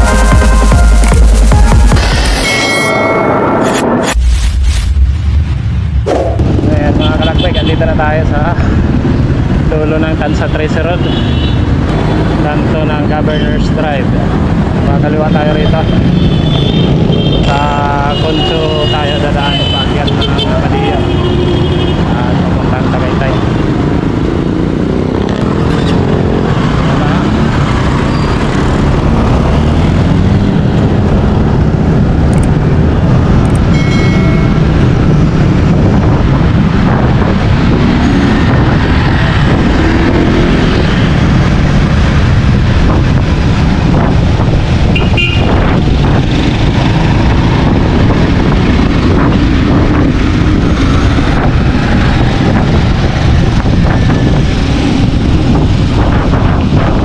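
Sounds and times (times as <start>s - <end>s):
short high-pitched tone: 0.0s - 4.2s
road rumble: 0.0s - 57.0s
wind noise: 1.8s - 57.0s
motorcycles running close by: 21.1s - 57.0s.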